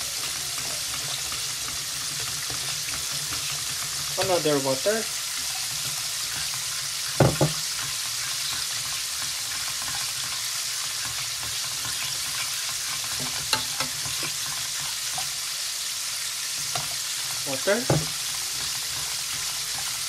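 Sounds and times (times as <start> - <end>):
gravy sizzling in a pot: 0.0 - 20.0
ladle knocking against pot: 17.9 - 18.1.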